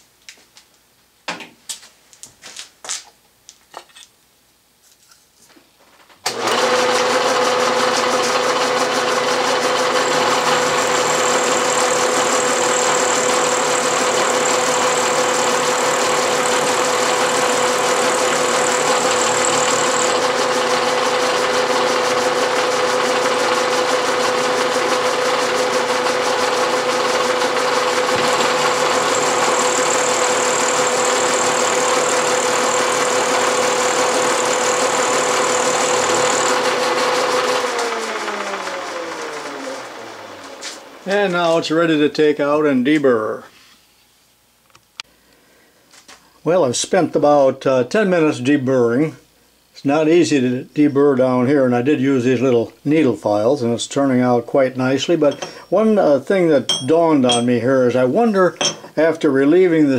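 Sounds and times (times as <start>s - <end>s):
milling machine cutting metal: 6.3s - 39.7s, 55.3s - 55.8s, 56.7s - 57.6s.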